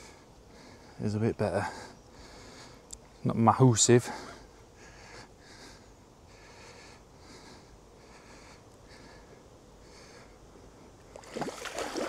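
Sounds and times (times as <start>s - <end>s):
person breathing: 0.0s - 1.0s, 1.6s - 3.2s, 4.0s - 11.0s.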